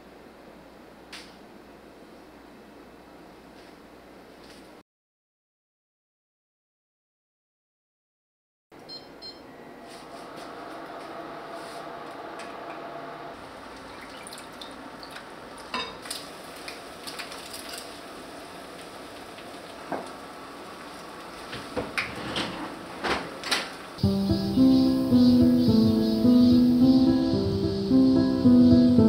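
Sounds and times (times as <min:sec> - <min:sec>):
steady hiss: 0:24.0 - 0:29.0.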